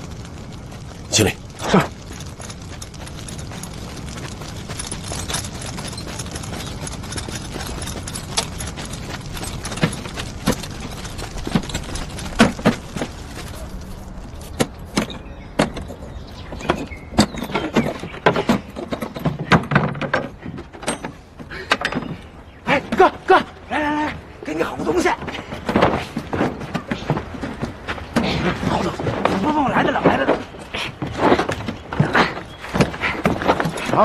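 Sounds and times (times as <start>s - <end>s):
crates and boxes knocking and clunking: 0.0s - 23.3s.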